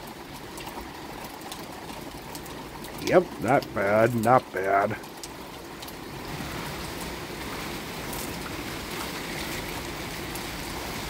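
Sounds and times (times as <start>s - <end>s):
steady rain falling: 0.0s - 11.0s.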